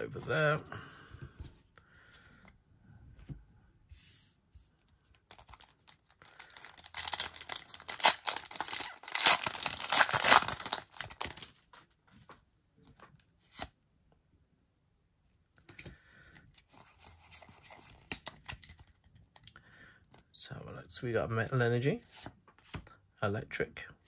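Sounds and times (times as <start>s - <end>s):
foil wrapper crinkling: 5.2s - 11.6s
foil wrapper tearing: 6.3s - 11.5s.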